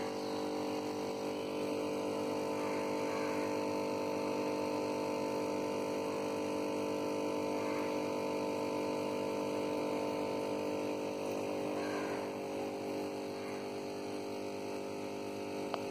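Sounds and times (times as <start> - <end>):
aquarium air pump humming: 0.0 - 15.9.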